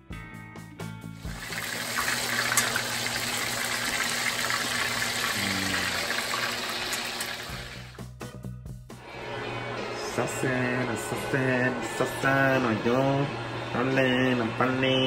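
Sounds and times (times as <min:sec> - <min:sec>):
chicken frying in hot oil: 0:01.2 - 0:07.9.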